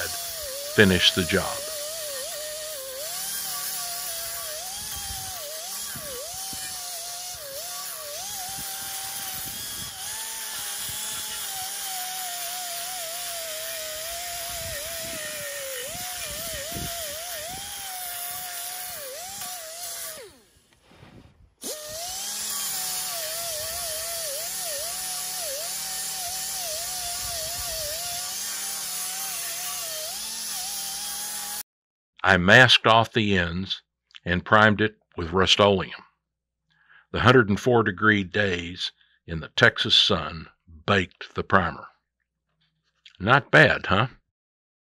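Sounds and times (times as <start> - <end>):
pneumatic grinder whining: 0.0 - 20.8, 21.6 - 31.6.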